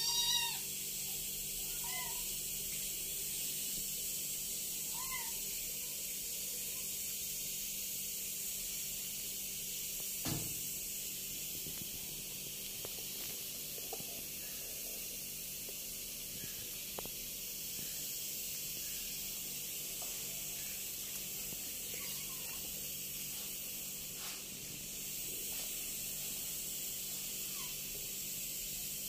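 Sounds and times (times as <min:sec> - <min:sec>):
faint kitten mews: 0:04.9 - 0:05.4, 0:21.9 - 0:22.7
knock: 0:10.2 - 0:10.6.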